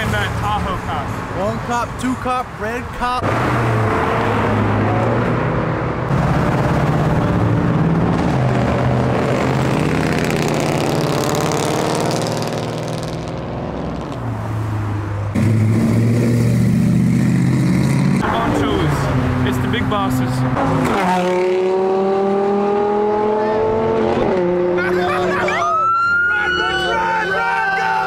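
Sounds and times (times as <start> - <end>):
cars accelerating past: 3.2 - 28.0.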